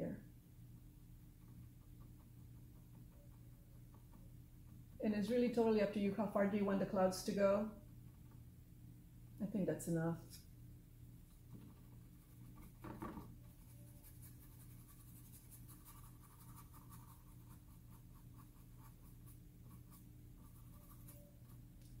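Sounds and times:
low steady hum: 0.0s - 22.0s
paintbrush scratching on canvas: 11.4s - 21.7s.

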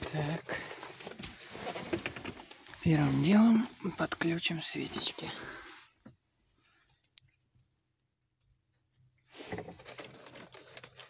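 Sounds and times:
wires rustling and scraping: 0.0s - 7.8s, 8.5s - 11.0s
faint clicks of plastic connectors: 6.8s - 9.1s.

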